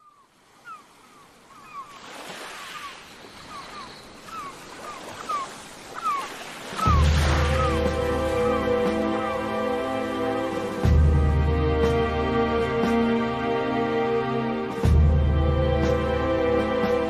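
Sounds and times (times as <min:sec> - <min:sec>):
birds giving falling cries: 0:00.0 - 0:10.6
ocean surf: 0:00.3 - 0:17.0
music with deep sustained notes: 0:06.9 - 0:17.0.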